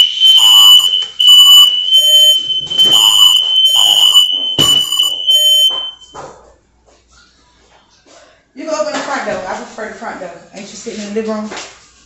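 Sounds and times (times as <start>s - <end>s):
smoke alarm shrill tone: 0.0s - 6.1s.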